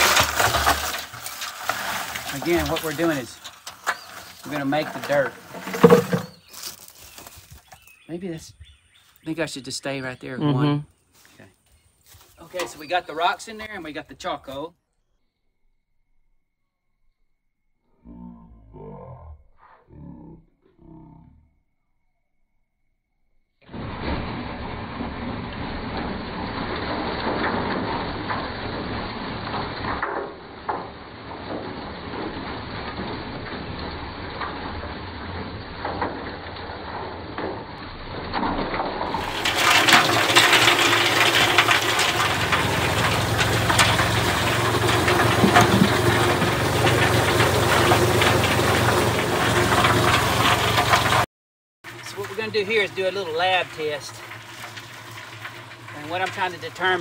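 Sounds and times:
charcoal tumbling in mixer drum: 0:00.0 - 0:07.9, 0:12.3 - 0:13.7, 0:23.7 - 0:51.3, 0:51.9 - 0:57.0
low motor hum: 0:41.4 - 0:51.2.

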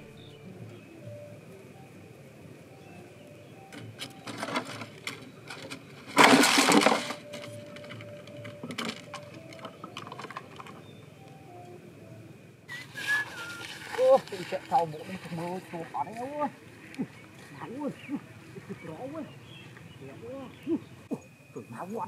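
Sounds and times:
tapping and rustling on plastic: 0:03.7 - 0:11.0
bird scrabbling in plastic bottle: 0:04.0 - 0:10.9, 0:13.0 - 0:15.9.

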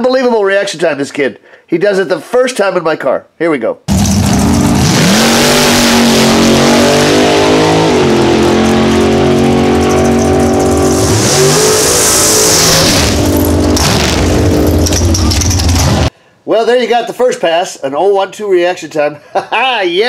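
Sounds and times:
drag car engine at full throttle: 0:03.9 - 0:16.1.

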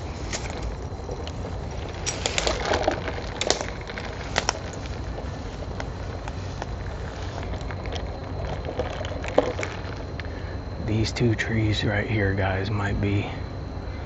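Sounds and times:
footsteps through crackling undergrowth: 0:00.0 - 0:10.8
steady low rumble: 0:00.0 - 0:14.0.

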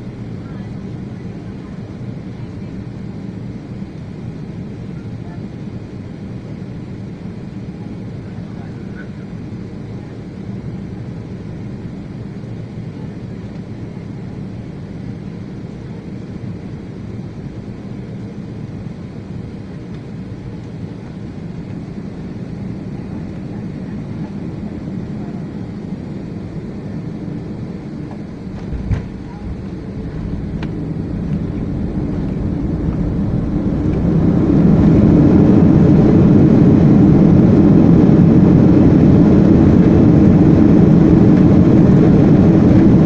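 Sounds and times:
jet engine drone in cabin: 0:00.0 - 0:43.0
rushing air: 0:28.4 - 0:43.0.

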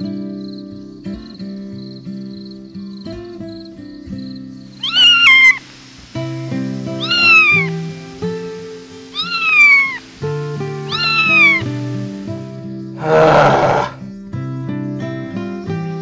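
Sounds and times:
kitten meowing: 0:04.8 - 0:05.6, 0:07.0 - 0:07.7, 0:09.1 - 0:10.0, 0:10.8 - 0:11.7.

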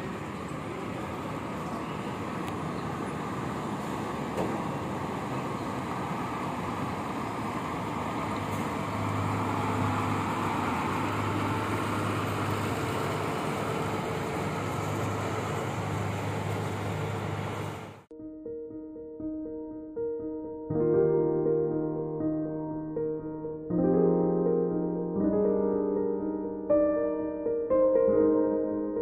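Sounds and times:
bus engine driving past: 0:00.0 - 0:18.1.

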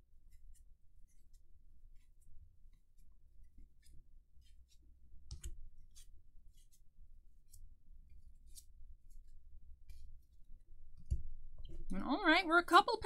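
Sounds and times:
cards being flicked: 0:05.2 - 0:06.1.

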